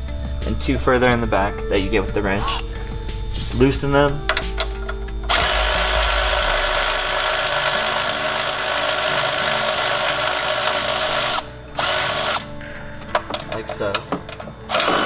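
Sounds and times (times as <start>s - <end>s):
cordless electric ratchet running: 2.4s - 2.7s, 5.3s - 12.5s, 14.7s - 15.0s.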